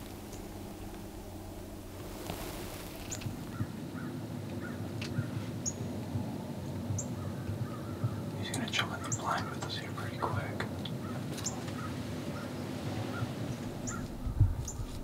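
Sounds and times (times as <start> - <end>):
low rustling: 0.0 - 4.7
birds chirping: 0.0 - 6.0, 6.9 - 15.0.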